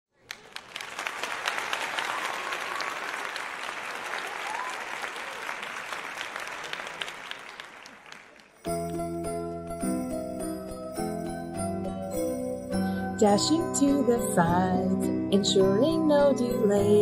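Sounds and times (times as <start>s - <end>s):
audience applauding: 0.1s - 9.0s.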